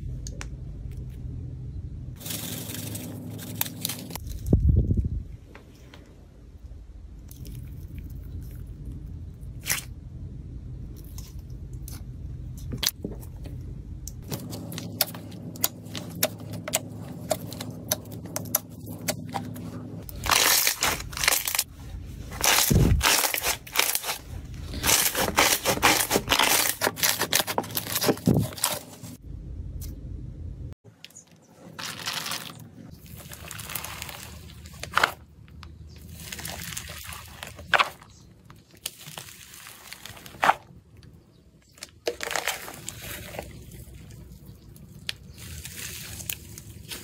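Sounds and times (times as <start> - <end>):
slime stretching and tearing: 20.0 - 21.7, 22.3 - 29.2, 31.7 - 35.2, 36.0 - 40.6, 42.0 - 47.0.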